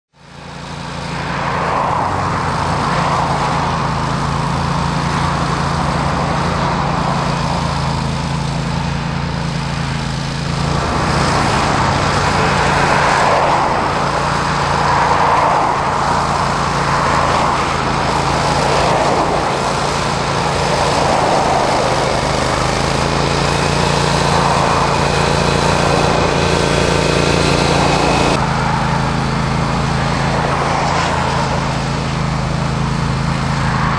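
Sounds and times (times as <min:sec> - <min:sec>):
mower engine droning: 0:00.1 - 0:33.9
flail rotor cutting grass: 0:00.2 - 0:33.9.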